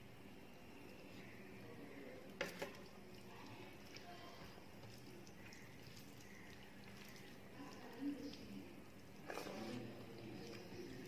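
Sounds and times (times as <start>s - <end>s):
fingers squishing rice: 2.4s - 11.0s.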